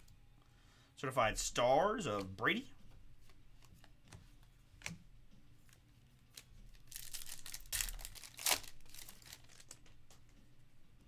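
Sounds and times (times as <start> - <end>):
wrapper tearing and crinkling: 6.3 - 9.8
sharp ripping: 6.9 - 9.7.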